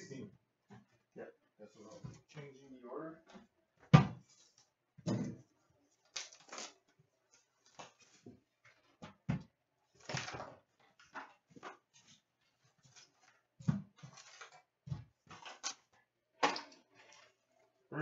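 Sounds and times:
plastic wrap crinkling and tearing: 6.0 - 6.9.

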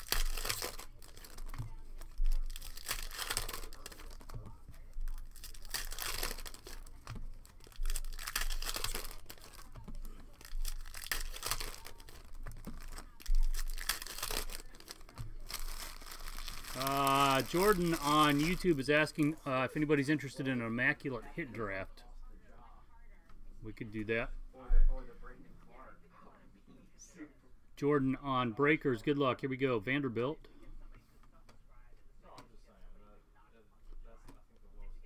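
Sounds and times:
foil wrappers tearing and crinkling: 0.0 - 19.3.

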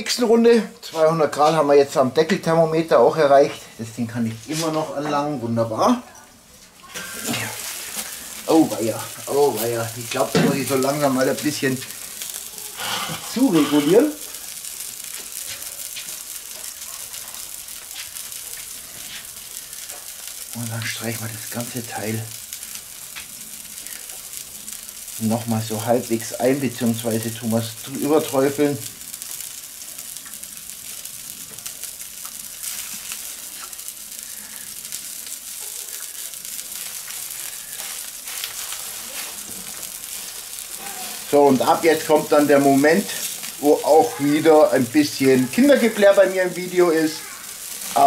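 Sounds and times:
faint crackles: 0.0 - 48.0
meat juices sizzling on grill: 0.0 - 48.0.

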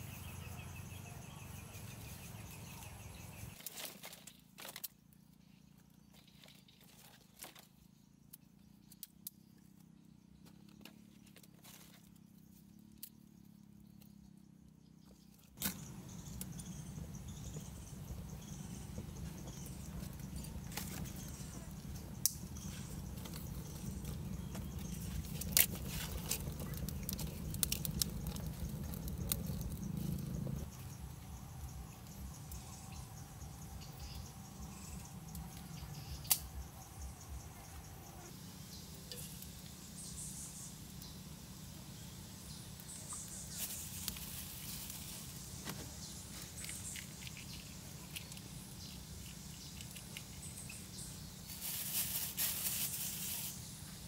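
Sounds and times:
wood fire crackling: 15.3 - 36.8, 40.7 - 53.5
insect buzz: 15.6 - 54.0.

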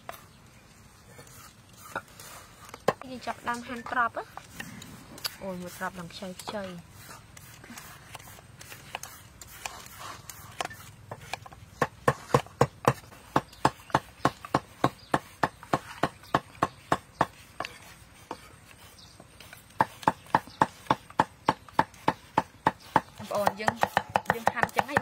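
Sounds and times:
knife chopping on wooden board: 10.6 - 18.5, 19.7 - 25.0.

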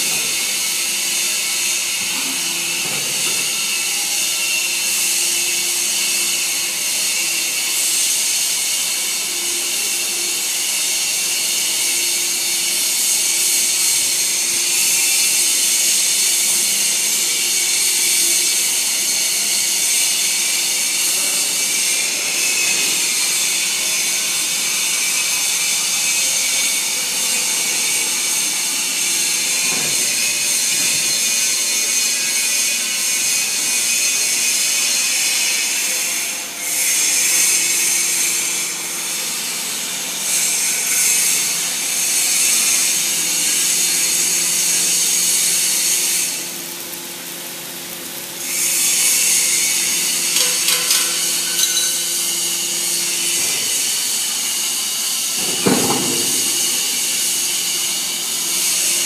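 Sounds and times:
hydraulic baler hissing: 39.6 - 59.0.

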